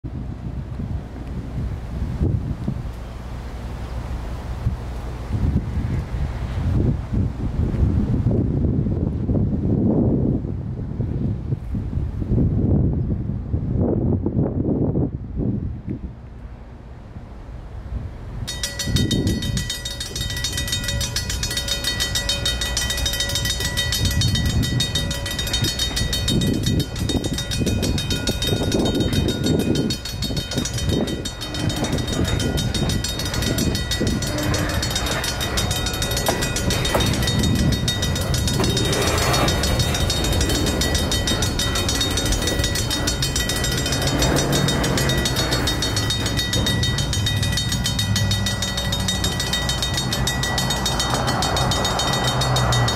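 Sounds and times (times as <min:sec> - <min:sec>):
diesel locomotive rumble: 0:00.1 - 0:10.4, 0:13.2 - 0:52.9
crossing bells ringing: 0:18.5 - 0:52.9.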